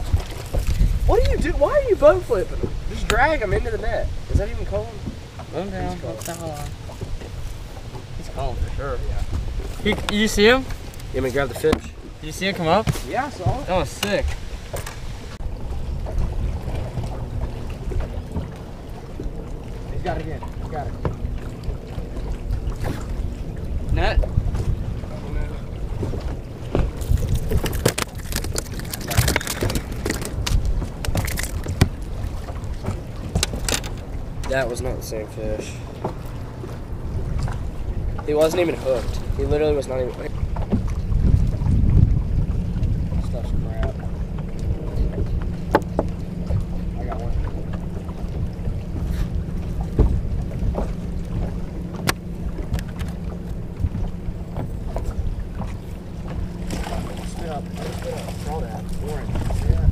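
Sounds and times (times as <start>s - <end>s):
water against boat hull: 0.0s - 59.9s
wind buffeting microphone: 0.0s - 59.9s
fishing tackle clicks and knocks: 6.1s - 6.8s, 26.7s - 32.1s, 32.8s - 34.6s, 50.0s - 53.2s.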